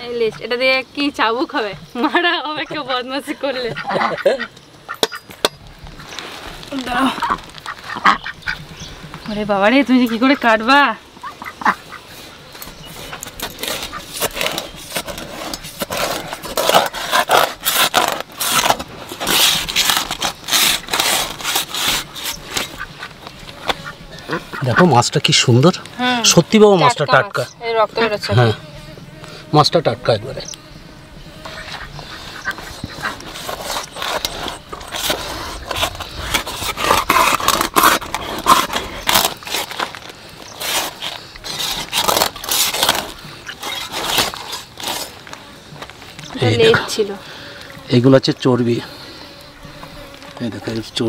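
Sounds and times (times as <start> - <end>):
knife scraping through fish: 12.9 - 23.1, 31.6 - 45.2.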